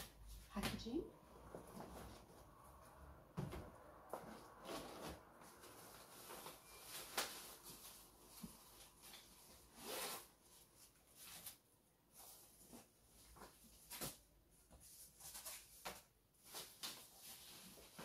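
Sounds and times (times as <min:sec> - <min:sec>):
packaging rustling and scraping: 0:04.2 - 0:14.2.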